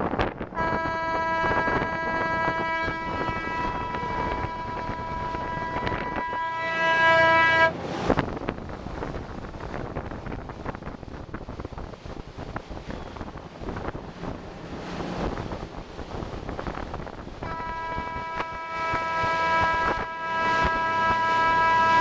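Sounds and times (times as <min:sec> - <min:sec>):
boat engine noise: 0:00.0 - 0:22.0
wind on microphone: 0:00.0 - 0:22.0
horn steady note: 0:00.6 - 0:07.8, 0:17.4 - 0:22.0.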